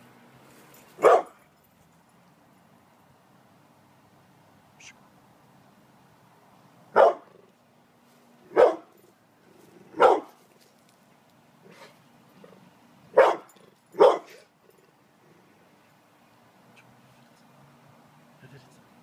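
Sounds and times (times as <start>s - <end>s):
dog barking: 1.0s - 1.4s, 6.9s - 7.3s, 8.5s - 8.9s, 10.0s - 10.4s, 13.1s - 14.5s.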